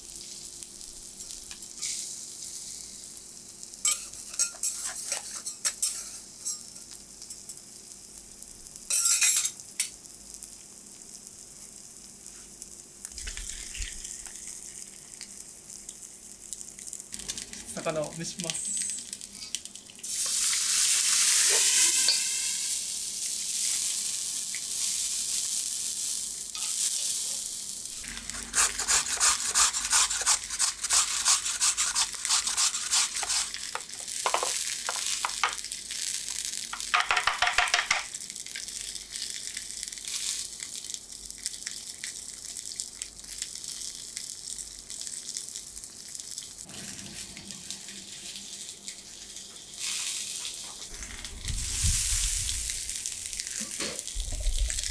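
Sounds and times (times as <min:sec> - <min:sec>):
water hissing on hot griddle: 0:00.0 - 0:54.9
rapid scratchy strokes: 0:28.3 - 0:33.6.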